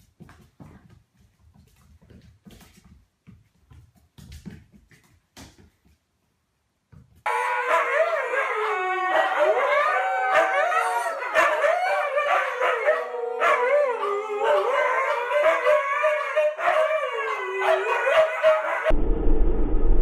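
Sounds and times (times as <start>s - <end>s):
huskies howling: 7.3s - 18.9s.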